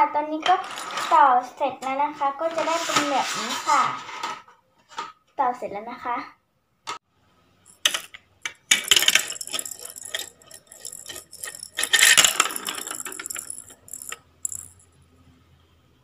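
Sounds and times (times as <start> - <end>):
plastic ball rattling down track: 7.7 - 14.8.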